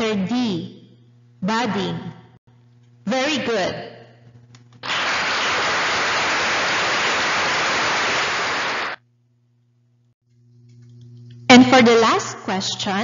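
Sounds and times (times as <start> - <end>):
hiss-like noise burst: 4.8 - 9.0.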